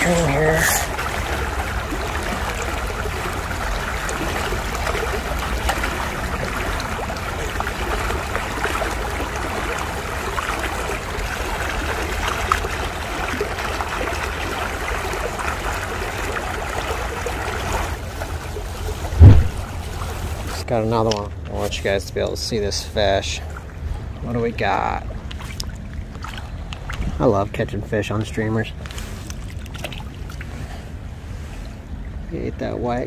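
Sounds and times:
creek water flowing over stones: 0:00.0 - 0:20.7.

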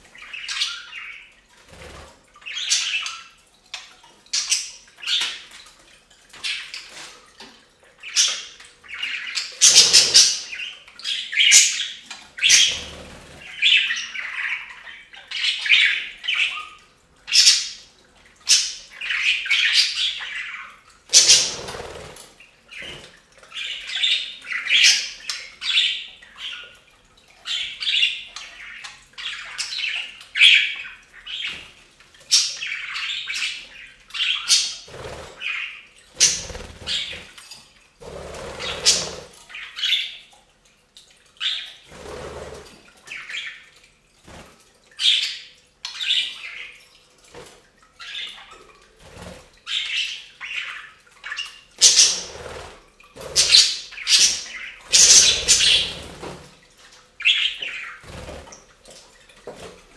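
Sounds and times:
budgerigars chattering and chirping: 0:08.0 - 0:16.7, 0:18.5 - 0:22.0, 0:32.3 - 0:37.3, 0:38.5 - 0:40.2, 0:53.3 - 0:56.0.

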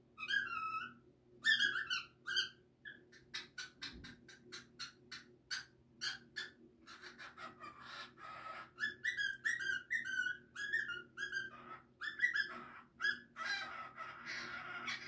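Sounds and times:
cockatiel whistling: 0:00.2 - 0:02.6, 0:08.8 - 0:13.7
cockatiel scratchy warbling: 0:06.9 - 0:15.0.

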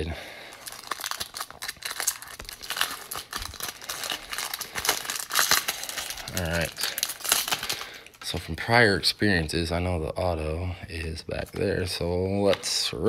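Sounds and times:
foil wrapper crinkling: 0:00.4 - 0:08.4.

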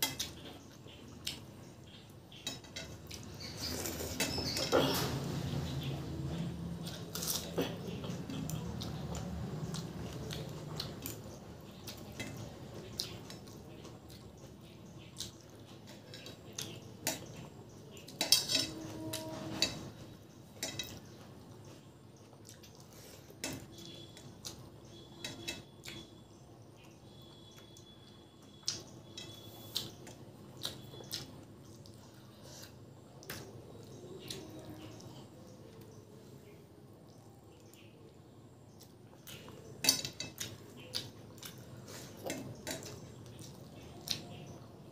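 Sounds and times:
chewing: 0:06.7 - 0:19.9, 0:21.8 - 0:26.1, 0:38.8 - 0:44.6.

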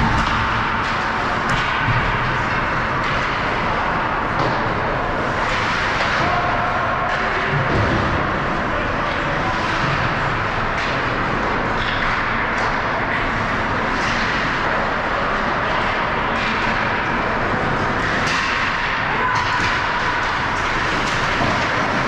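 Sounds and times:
ice rink crowd noise: 0:00.0 - 0:22.0.

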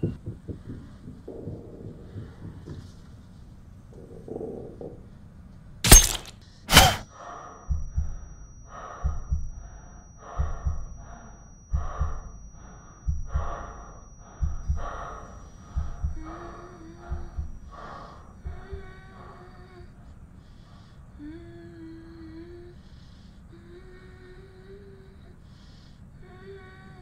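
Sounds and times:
low thumps: 0:00.0 - 0:06.1, 0:09.1 - 0:19.1
faint hummed tone: 0:00.0 - 0:27.0
sharp loud bursts: 0:05.8 - 0:07.1.

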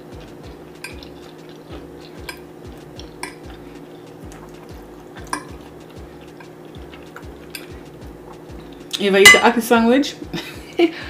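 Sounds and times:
steady low hum: 0:00.0 - 0:11.0
cutlery clinking on a plate: 0:05.2 - 0:05.6.

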